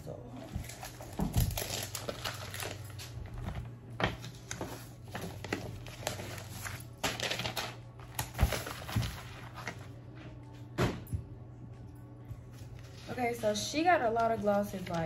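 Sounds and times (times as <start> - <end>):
bubble mailer crinkling: 0.6 - 3.4, 4.2 - 9.9.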